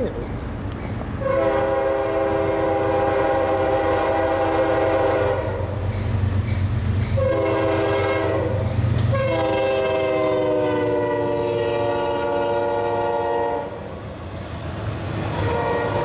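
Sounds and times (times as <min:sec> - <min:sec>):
locomotive engine rumble: 0:00.0 - 0:16.0
locomotive air horn blasts: 0:01.2 - 0:05.6, 0:07.2 - 0:13.8, 0:15.3 - 0:16.0.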